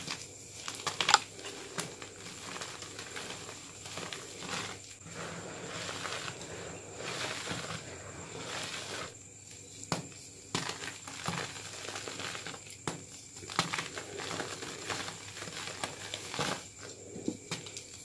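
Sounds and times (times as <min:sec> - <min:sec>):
chalk chunks cracking: 0:00.0 - 0:04.9, 0:09.8 - 0:16.8
chalk crunching and rustling: 0:00.0 - 0:18.0.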